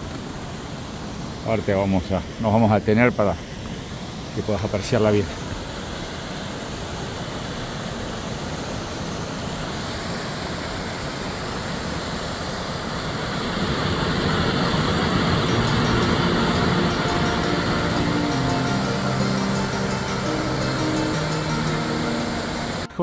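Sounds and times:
waterfall rushing: 0.0s - 23.0s
music with held notes: 14.5s - 23.0s.

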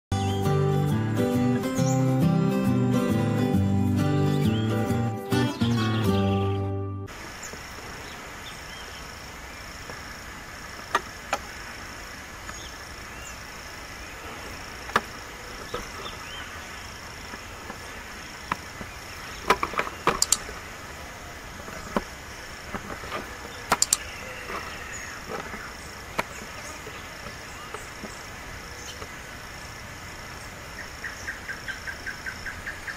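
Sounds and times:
high insect trill: 7.1s - 32.9s
sharp ticks: 20.2s - 20.5s, 23.7s - 24.1s.

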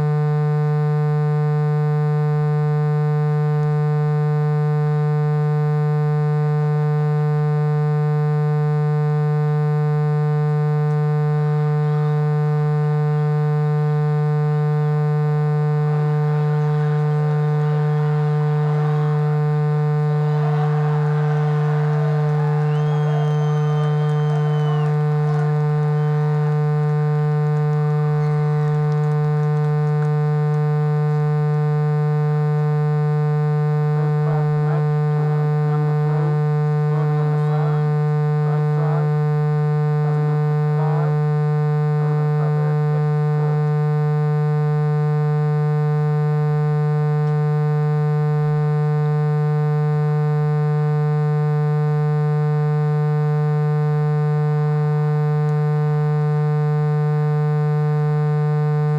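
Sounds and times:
low electrical buzz: 0.0s - 58.9s
faint wavering calls: 16.2s - 27.0s, 27.7s - 29.5s, 34.0s - 39.4s, 40.0s - 41.6s.

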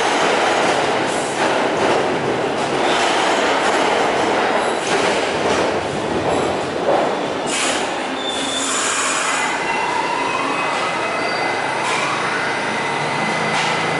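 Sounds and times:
rumbling wheel and track noise: 0.0s - 11.0s, 11.6s - 13.9s
train wheels squealing on rails: 7.2s - 13.9s.

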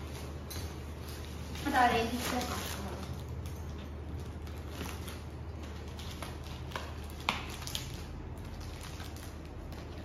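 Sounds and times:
scissors cutting packing tape: 4.4s - 10.0s.

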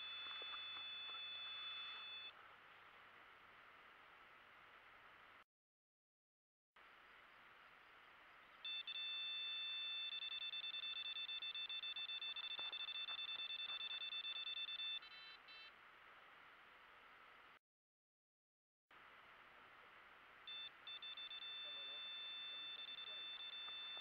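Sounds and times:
electronic bite alarm beeping: 0.0s - 2.3s, 8.6s - 15.7s, 20.5s - 24.0s.

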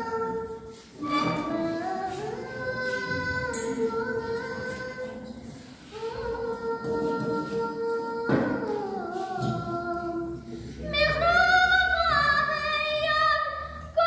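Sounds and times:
woman singing: 5.9s - 14.0s.

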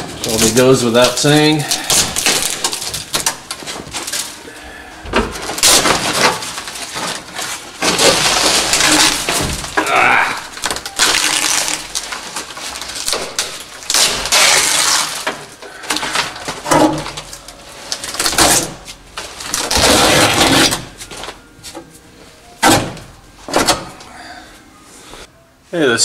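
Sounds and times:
insulation being ripped by hand: 7.8s - 12.1s, 13.0s - 15.4s.

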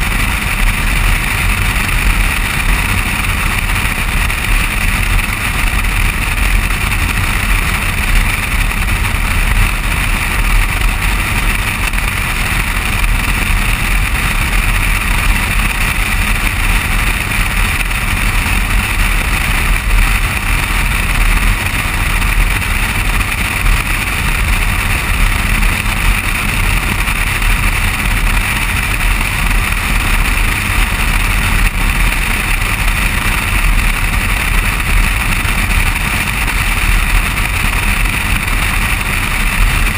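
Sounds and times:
tyre and road noise: 0.0s - 39.9s
wind rush: 0.0s - 39.9s.

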